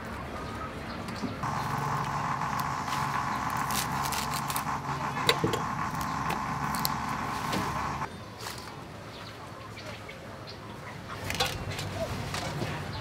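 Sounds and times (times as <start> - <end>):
steady motor hum: 1.4 - 8.1.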